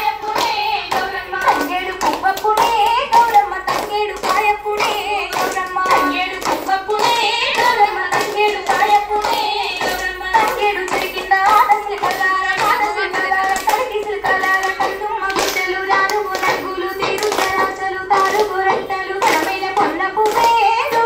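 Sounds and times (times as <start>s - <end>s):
people singing: 0.0s - 21.0s
women clapping in rhythm: 0.0s - 21.0s.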